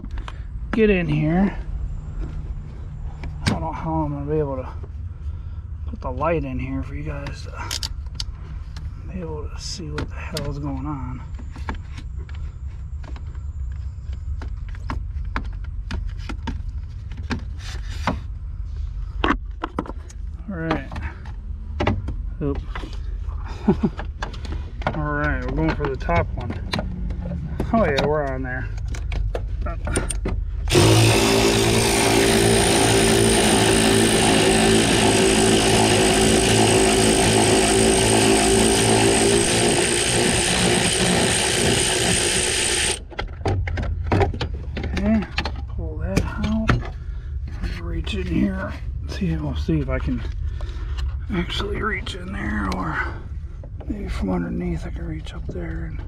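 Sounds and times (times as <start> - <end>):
steady low hum: 0.0 - 56.0
power tool motor running: 30.7 - 43.1.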